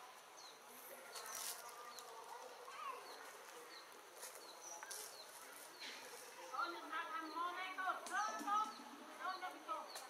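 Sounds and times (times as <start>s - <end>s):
rustles: 1.0s - 6.6s.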